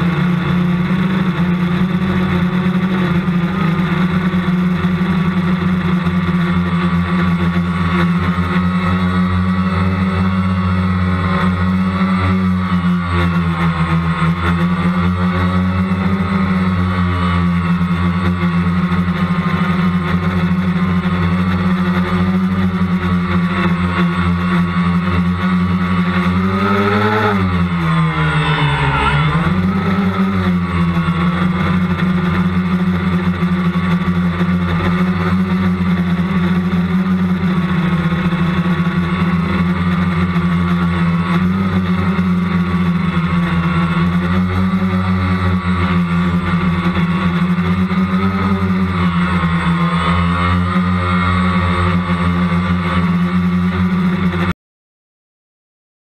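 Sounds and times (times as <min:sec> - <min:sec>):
drone motors and propellers humming: 0:00.0 - 0:54.5.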